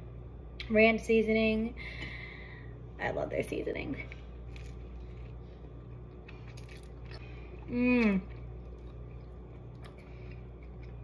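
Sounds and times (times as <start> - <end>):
steady low hum: 0.0 - 11.0
woman chewing: 4.1 - 11.0
woman saying mmm: 7.7 - 8.3.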